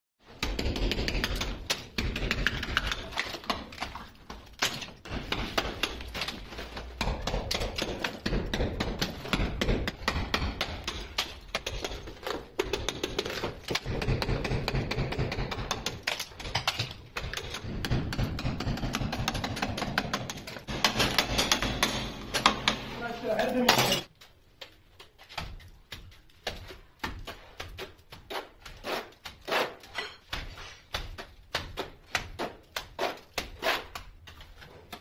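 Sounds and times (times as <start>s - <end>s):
tiles chipping off wall: 0.2s - 35.0s
hammer striking steel chisel: 12.6s - 23.0s.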